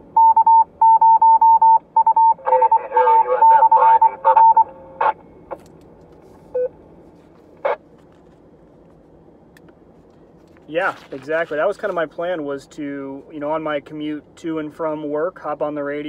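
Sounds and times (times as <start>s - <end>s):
short beep: 0.2s - 4.7s
radio beeping tone: 0.2s - 5.3s
garbled radio sound: 2.3s - 5.2s.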